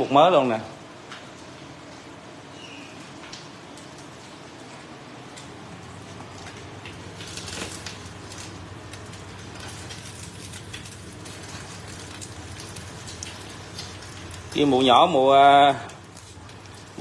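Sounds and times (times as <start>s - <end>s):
steady low hum: 0.0s - 17.0s
batter sizzling in a hot pan: 6.2s - 17.0s.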